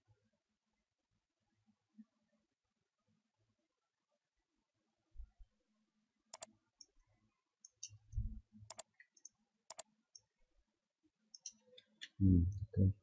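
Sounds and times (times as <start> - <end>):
mouse clicking: 6.3 - 7.0, 7.6 - 8.0, 8.7 - 10.3, 11.4 - 12.2
light ticks: 11.4 - 12.2.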